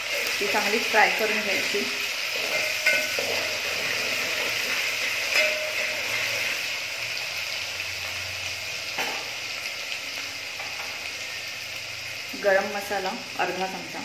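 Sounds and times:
onion frying in oil: 0:00.0 - 0:14.0
spoon clinking against pot: 0:02.4 - 0:03.5, 0:05.2 - 0:06.1.

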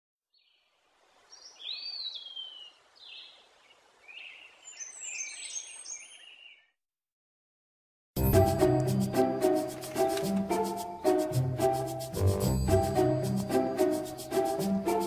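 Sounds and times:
songbirds singing: 0:00.3 - 0:06.8
faint outdoor hiss: 0:00.4 - 0:05.6.

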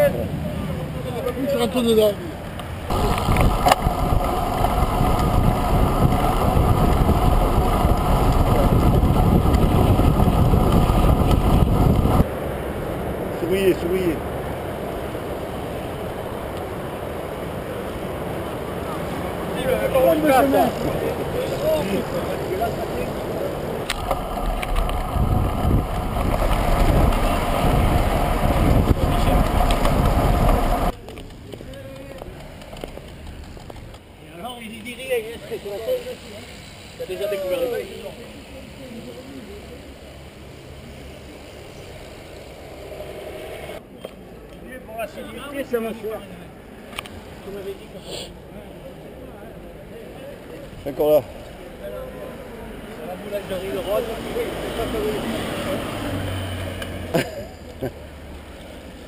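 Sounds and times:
tyres rolling on tarmac: 0:00.0 - 0:59.0
wind rushing over microphone: 0:02.6 - 0:31.0.

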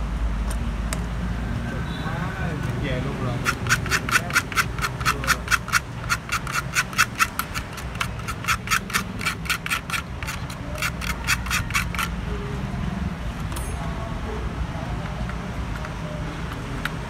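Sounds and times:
rapid scrubbing strokes: 0:03.1 - 0:12.2.

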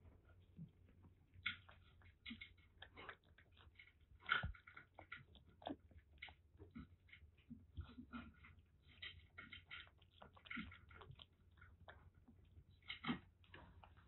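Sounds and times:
kitten chewing and lapping: 0:00.0 - 0:14.0.

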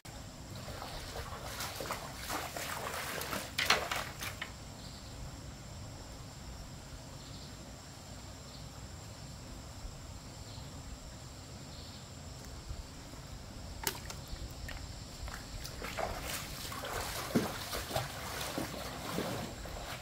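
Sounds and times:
high insect whine: 0:00.1 - 0:20.0
stream water rushing: 0:15.2 - 0:20.0.

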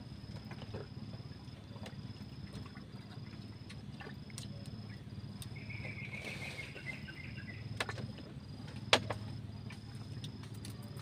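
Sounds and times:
low steady hum: 0:00.0 - 0:11.0
high-pitched insect trill: 0:01.0 - 0:08.7
twittering chirp: 0:04.9 - 0:07.7.

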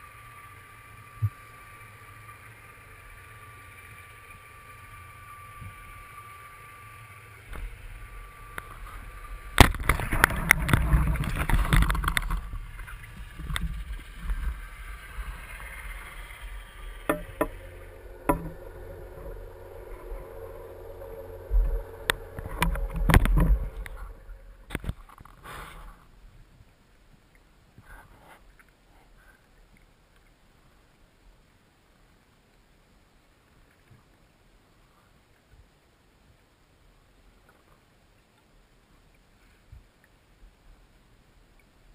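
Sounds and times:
underwater water rush: 0:00.0 - 0:26.4
faint steady hum: 0:00.0 - 0:41.9.

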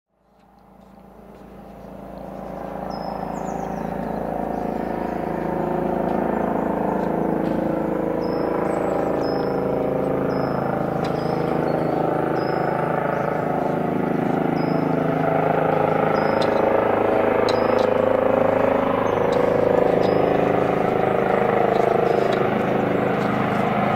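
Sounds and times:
helicopter rotor and engine: 0:00.2 - 0:23.9
small bird chirping: 0:01.3 - 0:07.1, 0:08.2 - 0:23.7.

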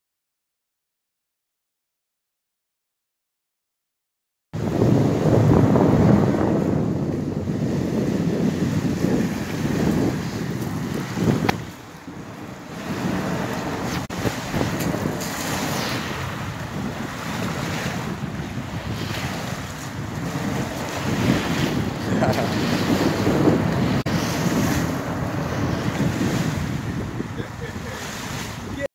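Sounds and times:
wind buffeting microphone: 0:04.6 - 0:28.9
waves washing onto pebbles: 0:07.6 - 0:28.9.

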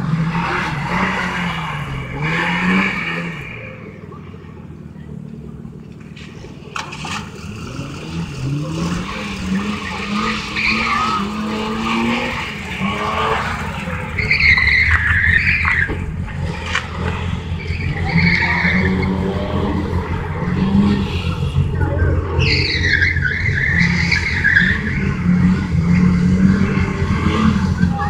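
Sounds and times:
car engine revving: 0:00.0 - 0:28.0
tyres squealing: 0:06.8 - 0:28.0.

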